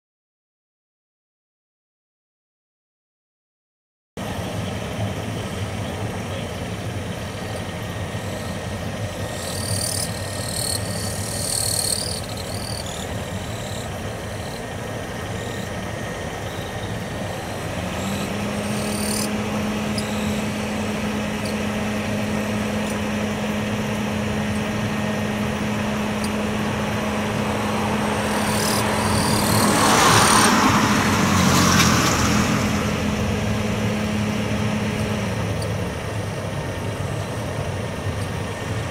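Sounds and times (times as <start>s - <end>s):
jet engines rumbling: 4.2s - 38.9s
steady engine tone: 4.2s - 38.9s
jet rushing: 26.2s - 34.4s.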